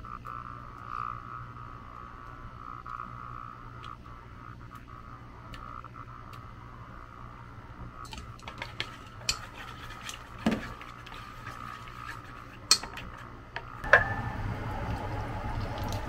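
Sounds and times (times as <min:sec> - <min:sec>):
metal bowl ringing: 0:13.8 - 0:15.4.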